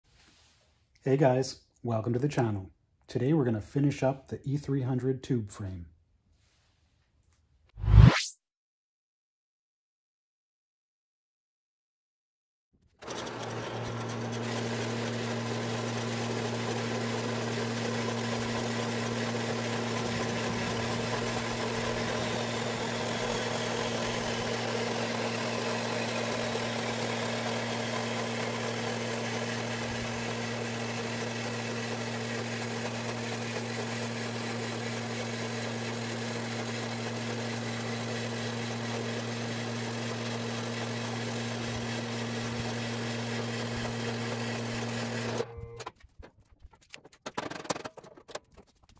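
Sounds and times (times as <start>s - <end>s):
band saw cutting metal: 13.0s - 45.6s.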